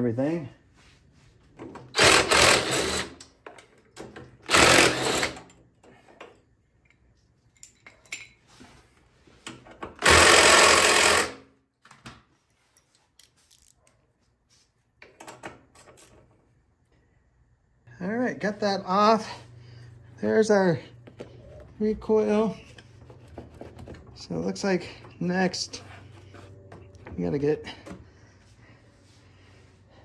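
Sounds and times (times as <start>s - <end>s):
power drill running: 1.9s - 3.2s, 4.4s - 5.4s, 10.0s - 11.4s.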